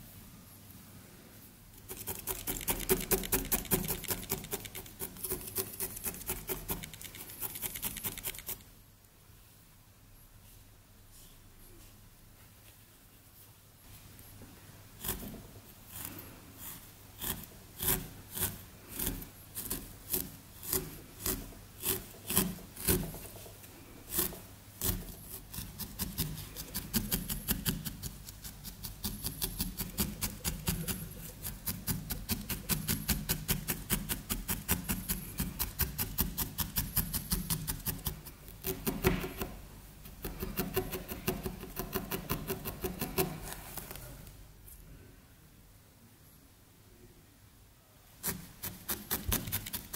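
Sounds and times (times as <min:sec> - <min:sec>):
felting needle jabbing foam: 0:01.8 - 0:08.7, 0:15.0 - 0:23.4, 0:24.0 - 0:44.0, 0:48.2 - 0:49.9.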